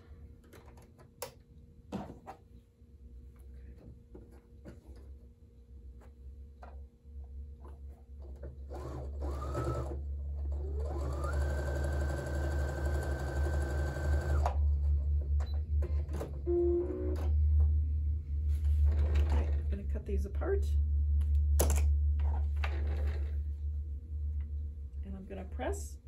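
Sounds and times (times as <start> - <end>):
sewing machine stitching: 8.4 - 14.6.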